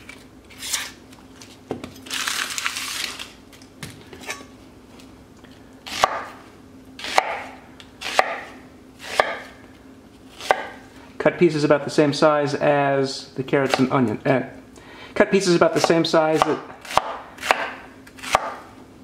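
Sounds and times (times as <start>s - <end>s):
dry onion skin rustling: 0.0s - 3.4s
knife slicing onion on wooden board: 5.9s - 6.4s, 7.0s - 9.5s, 10.3s - 10.8s, 15.8s - 18.7s.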